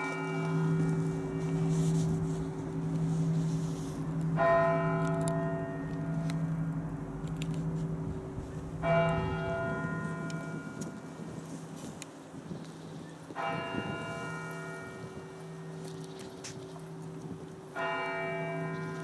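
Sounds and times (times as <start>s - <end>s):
large church bell tolling: 0.0s - 11.7s, 13.3s - 16.0s, 16.7s - 19.0s.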